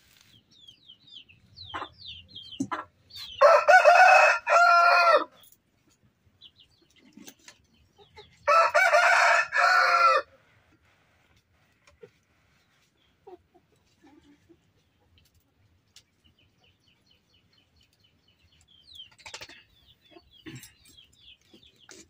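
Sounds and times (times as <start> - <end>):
rooster crowing: 3.4 - 5.4, 8.5 - 10.3.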